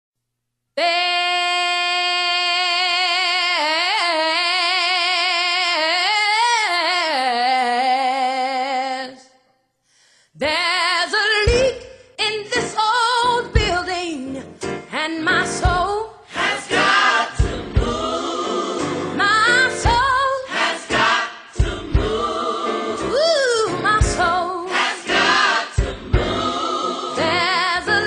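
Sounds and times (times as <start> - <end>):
woman singing unaccompanied: 0.8 - 9.3
gospel song with beat: 10.4 - 28.0.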